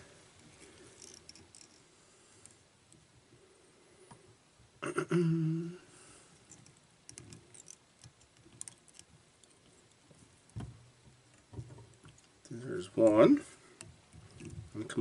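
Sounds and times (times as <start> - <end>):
person humming: 4.8 - 5.9.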